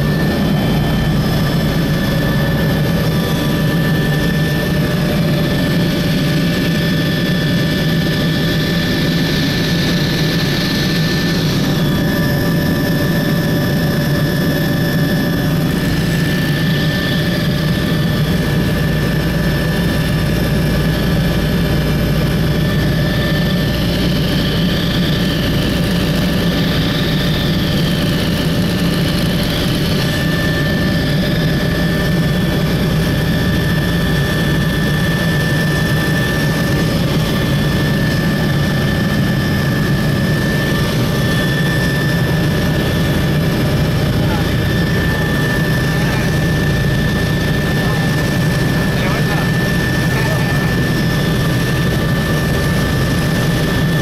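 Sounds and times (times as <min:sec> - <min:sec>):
high whine: 0:00.0 - 0:19.2, 0:21.8 - 0:54.0
helicopter engine and rotor drone: 0:00.0 - 0:54.0.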